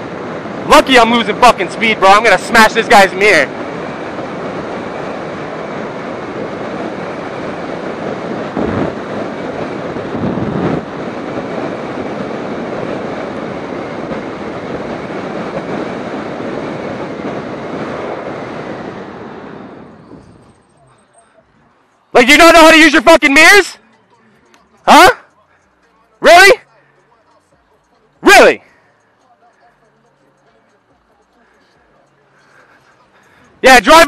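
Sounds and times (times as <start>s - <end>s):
wind rushing over microphone: 0.0s - 23.7s
motorcycle road noise: 0.0s - 34.0s.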